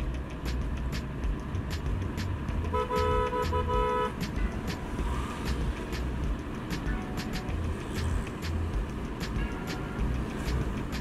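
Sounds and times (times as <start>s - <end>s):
music with a steady beat: 0.0s - 11.0s
vehicle rumble: 0.0s - 11.0s
vehicle horn beeps: 2.7s - 4.2s.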